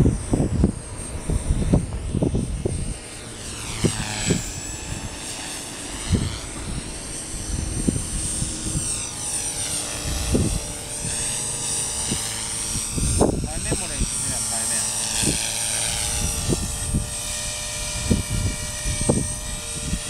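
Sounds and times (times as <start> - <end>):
model helicopter rotor whine: 0.0 - 20.0.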